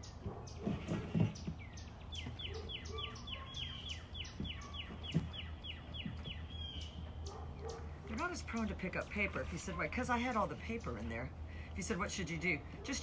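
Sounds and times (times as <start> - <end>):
bird chirping: 0.0 - 9.7.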